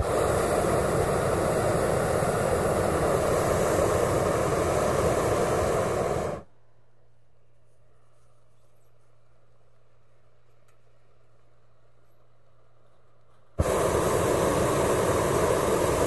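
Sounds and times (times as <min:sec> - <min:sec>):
pilot light hissing: 0:00.0 - 0:06.5, 0:13.6 - 0:16.0
propane burners blasting: 0:00.0 - 0:06.5, 0:13.6 - 0:16.0.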